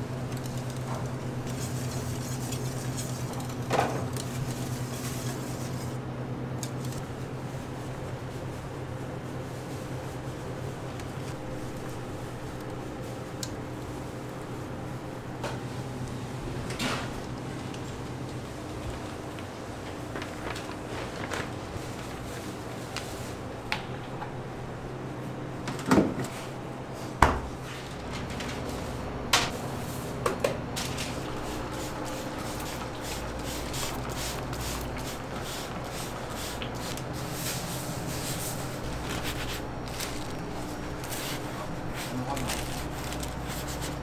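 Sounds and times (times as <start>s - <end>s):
equipment humming: 0.0s - 44.0s.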